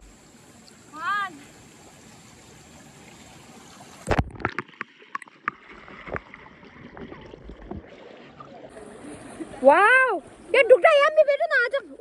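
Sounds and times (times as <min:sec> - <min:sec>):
sharp underwater clicks and knocks: 0:04.0 - 0:07.9
knock and splash in water: 0:04.0 - 0:08.0.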